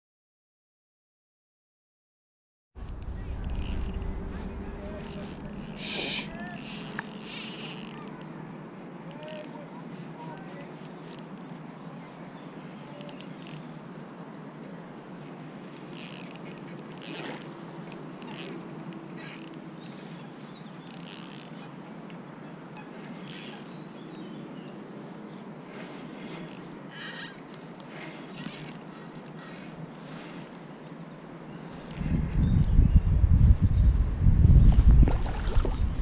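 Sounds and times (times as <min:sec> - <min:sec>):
spinning reel turning: 0:03.4 - 0:08.2, 0:15.8 - 0:17.4, 0:20.9 - 0:21.6, 0:23.2 - 0:23.8
short reel clicks: 0:05.0 - 0:08.3, 0:09.1 - 0:09.6, 0:15.8 - 0:20.0.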